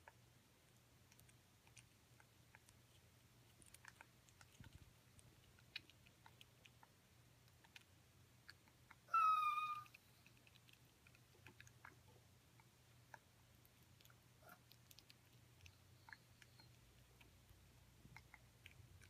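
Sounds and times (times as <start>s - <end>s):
parrot whine-like call: 9.1s - 9.9s.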